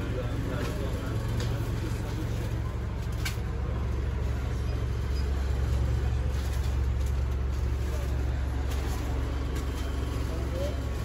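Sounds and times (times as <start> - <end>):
indoor market rumble and hum: 0.0 - 11.0.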